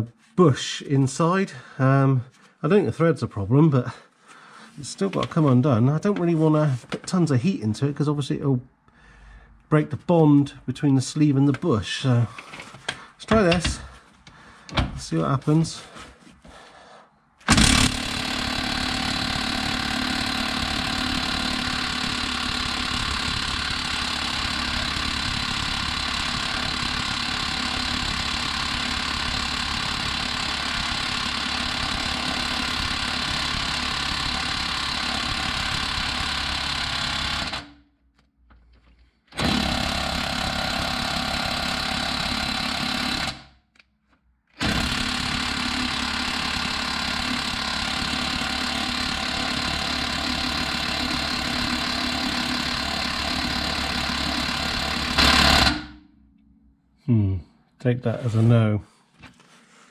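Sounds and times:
impact wrench hammering: 13.2 - 13.9, 17.4 - 37.7, 39.4 - 43.5, 44.6 - 56.0.

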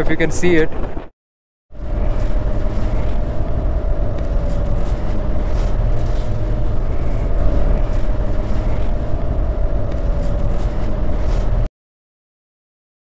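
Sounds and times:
motorcycle engine drone: 1.7 - 11.7
wind rumble on microphone: 1.8 - 11.7.

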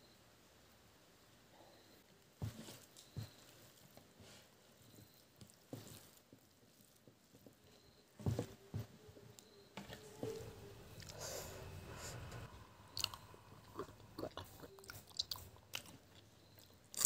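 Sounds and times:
hands mixing food squishing: 2.6 - 7.7, 9.8 - 17.0.

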